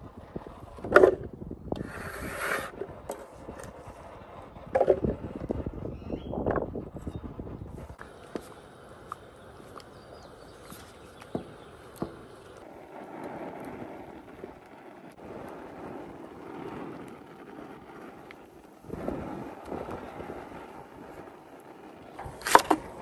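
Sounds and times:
paddle squelching and scraping dough: 1.8 - 4.0.

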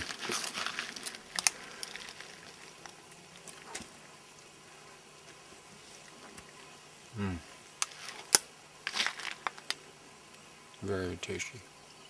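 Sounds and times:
bread crackling as it breaks: 0.0 - 3.8, 7.9 - 9.8.

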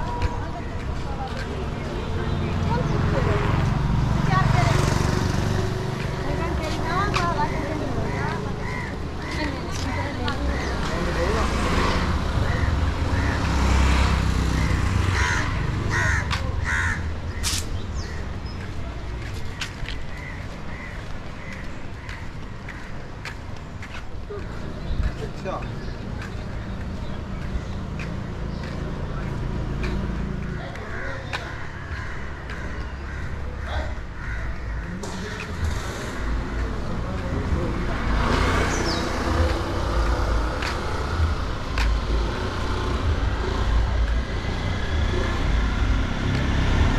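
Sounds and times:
low street rumble: 0.0 - 46.9
crows cawing: 7.5 - 10.9, 12.4 - 13.7, 14.5 - 18.2, 19.5 - 23.0, 30.5 - 36.8
bird cawing: 8.0 - 9.4, 14.6 - 17.5, 30.8 - 35.5.

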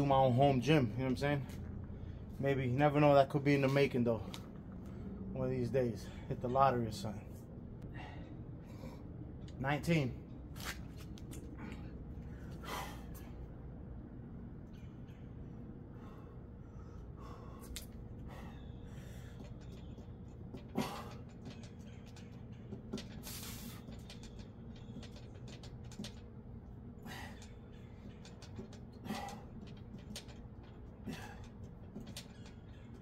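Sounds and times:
low outdoor rumble: 0.0 - 33.0
man breathing hard: 7.8 - 9.2, 15.8 - 19.6, 27.0 - 27.7, 31.0 - 31.6.

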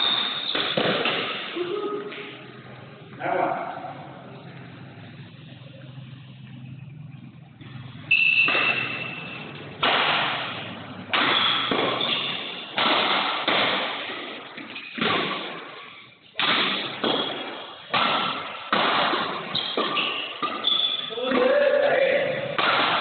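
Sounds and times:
rackets hitting shuttlecock: 0.0 - 2.4, 7.6 - 23.0.

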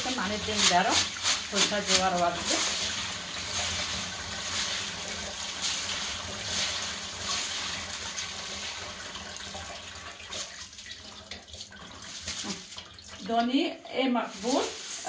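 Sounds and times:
hand stirring grains: 0.0 - 6.8, 14.1 - 15.0
tap water splashing on grains: 0.3 - 13.6.

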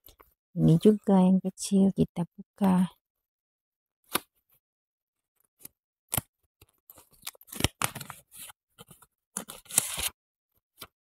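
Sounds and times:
paper crackling and rustling: 5.6 - 11.0
paper envelope clicks: 6.9 - 10.2.

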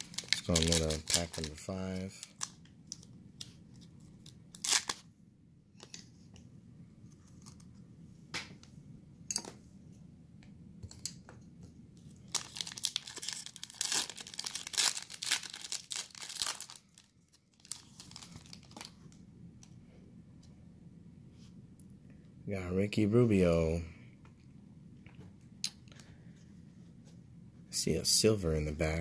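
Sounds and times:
foil wrapper tearing and crinkling: 0.0 - 3.1, 4.1 - 5.0, 12.2 - 19.0.

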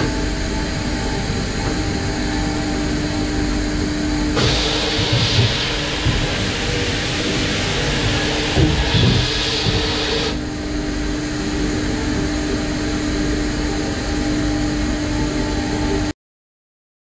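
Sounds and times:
machine hum: 0.0 - 16.1
hiss: 4.4 - 10.4.

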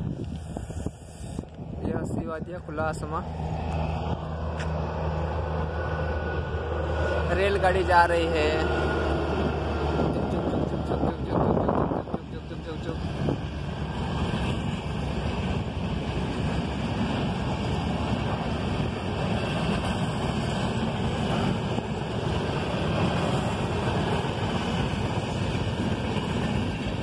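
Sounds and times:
wind on microphone: 0.0 - 3.0
train coaches rumbling past: 0.0 - 27.0.

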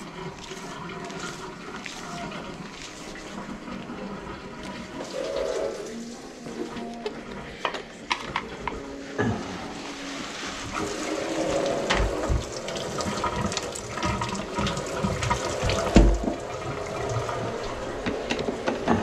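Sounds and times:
water flowing down a drain: 0.0 - 19.0
water running into a sink: 9.8 - 19.0.

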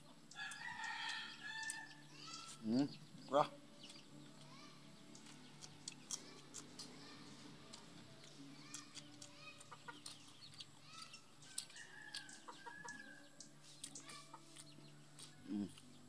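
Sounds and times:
chickens clucking: 7.7 - 15.9.

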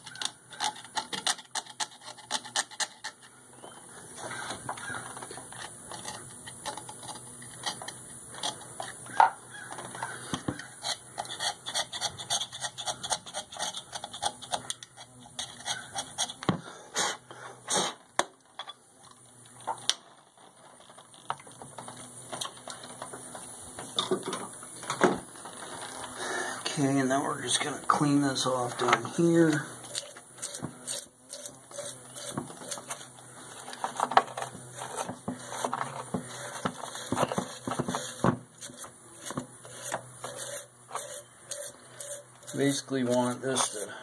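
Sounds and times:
tool scraping metal: 0.0 - 16.6, 26.6 - 44.0.

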